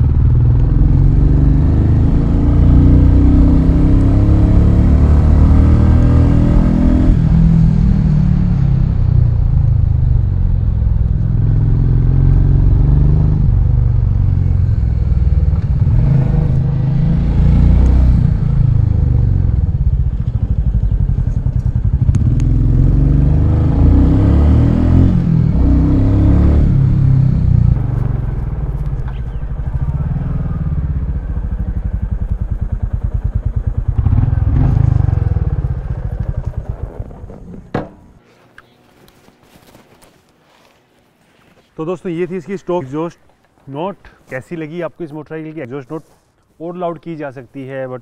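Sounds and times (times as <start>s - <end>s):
motorcycle engine running: 0.0s - 38.2s
sharp knock: 37.7s - 38.2s.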